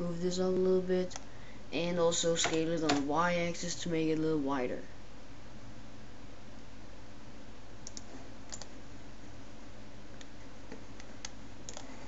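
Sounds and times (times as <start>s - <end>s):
low hum and hiss: 0.0s - 12.0s
keyboard and mouse clicks: 7.8s - 8.7s, 10.2s - 12.0s.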